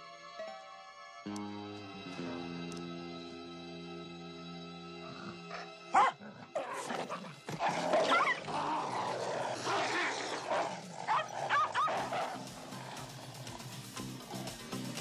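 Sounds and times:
dogs snarling and barking: 5.0s - 15.0s
dog yelps: 11.1s - 12.2s.

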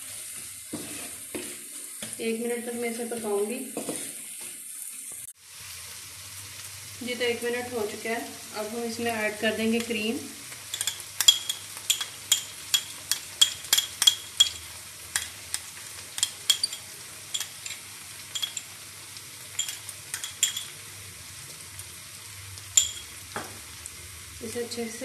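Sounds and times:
vegetables sizzling in a frying pan: 0.0s - 25.0s
spoon clicks and taps: 10.7s - 16.8s, 17.4s - 17.8s, 18.4s - 18.7s, 19.6s - 20.7s, 22.8s - 23.1s.

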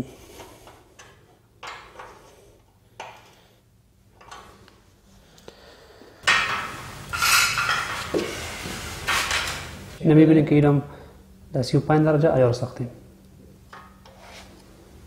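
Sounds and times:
metal frame clinking and scraping: 6.3s - 8.2s.

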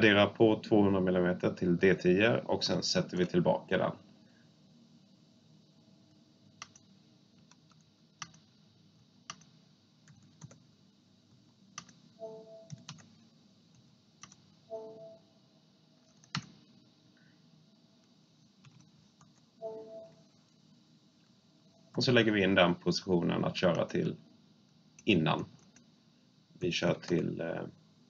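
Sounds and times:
computer input clicks: 16.1s - 16.6s.

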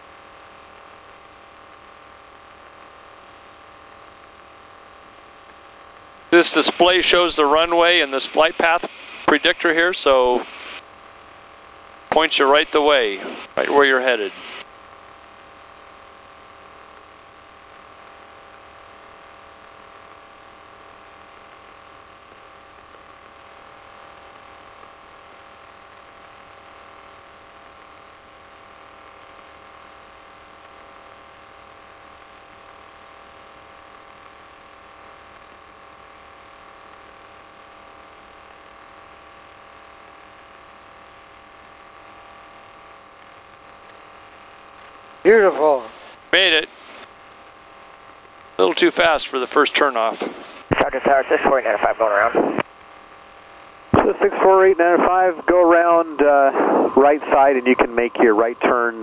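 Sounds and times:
headset intercom hum and hiss: 0.0s - 59.0s.

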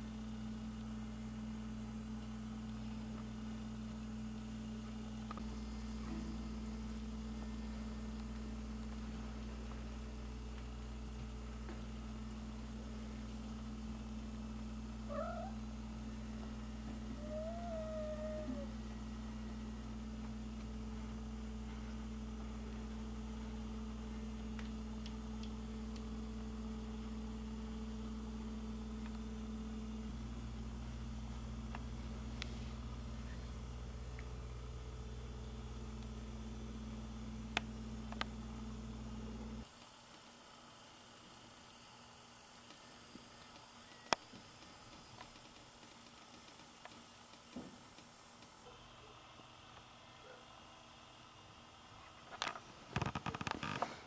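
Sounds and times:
steady low hum: 0.0s - 54.0s
cat meowing: 15.1s - 15.6s, 17.1s - 18.7s.

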